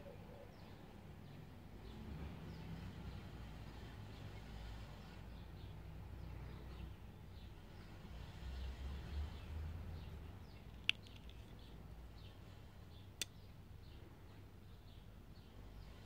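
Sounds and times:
rattle of small clicks: 10.6s - 11.7s.

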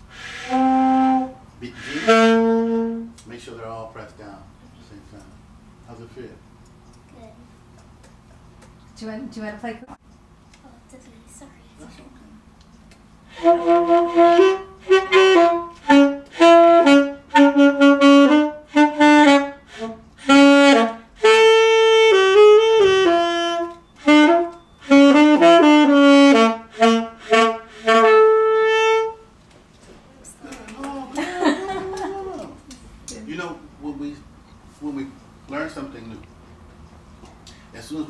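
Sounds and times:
saxophone notes: 0.0s - 3.2s, 13.2s - 29.4s.

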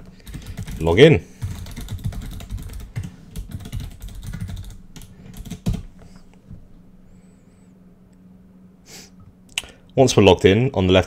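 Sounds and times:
faint steady hum: 0.0s - 11.0s
keyboard typing: 0.2s - 5.9s.

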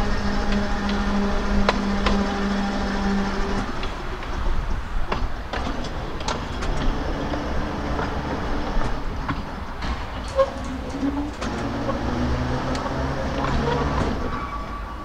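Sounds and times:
tram rumbling along track: 0.0s - 15.0s
wheels clicking on rails: 0.0s - 15.0s.

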